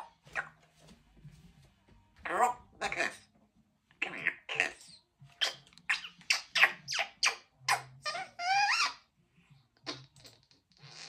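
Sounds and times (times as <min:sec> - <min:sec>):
parrot chattering: 0:02.2 - 0:03.3, 0:04.0 - 0:09.1
parrot whistle: 0:05.4 - 0:09.0.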